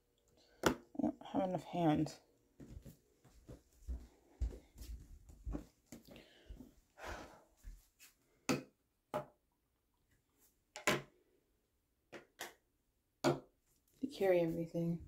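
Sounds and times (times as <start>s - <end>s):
knocks and clunks of objects: 10.7s - 11.2s.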